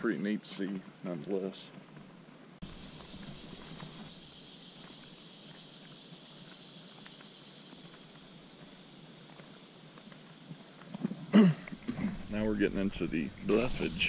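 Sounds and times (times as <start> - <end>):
high-pitched background hiss: 0.0 - 14.0
footsteps crunching on trail: 1.7 - 14.0.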